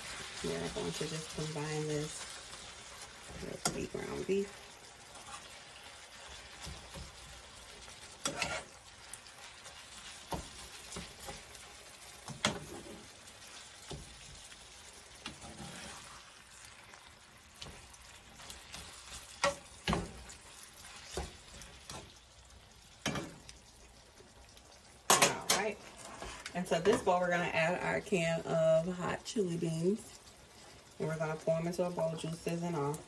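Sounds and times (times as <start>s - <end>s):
meat and onion sizzling in a skillet: 0.0s - 33.0s
fork scraping and clicking on pan: 8.1s - 8.8s, 12.2s - 13.0s.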